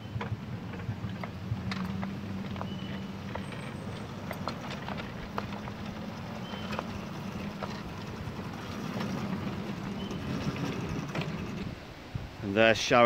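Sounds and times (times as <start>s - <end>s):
low motor hum: 0.0s - 12.0s
wheels clicking on track: 0.0s - 12.1s
short high squeaks: 2.5s - 11.8s.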